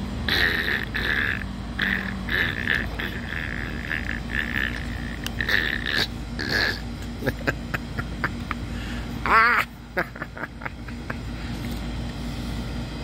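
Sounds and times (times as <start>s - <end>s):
low background hum: 0.0s - 13.0s
puppy whiny growl: 0.3s - 6.9s.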